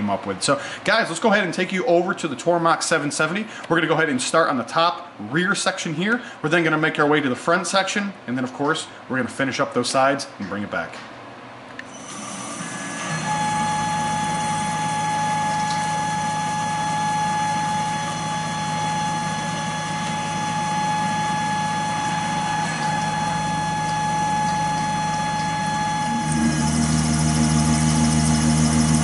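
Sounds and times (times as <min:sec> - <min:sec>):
milling spindle whine: 0:12.1 - 0:29.0
coolant pouring: 0:21.2 - 0:29.0.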